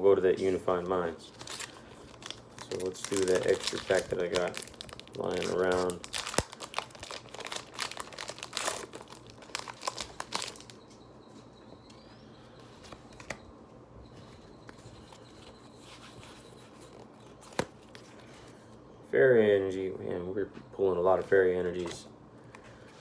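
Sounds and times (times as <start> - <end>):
foil wrapper crinkling and tearing: 1.3 - 10.8.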